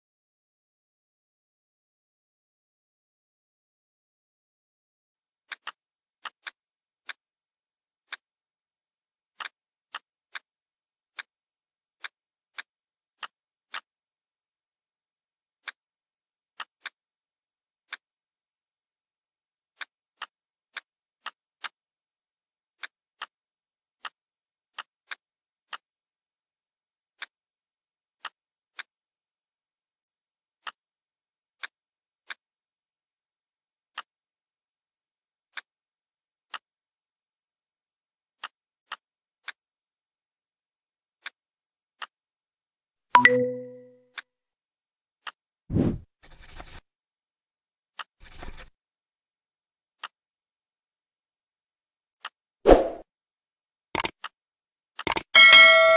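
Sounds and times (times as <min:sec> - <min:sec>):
mouse and keyboard clicks: 0:54.0 - 0:54.3, 0:55.0 - 0:55.3.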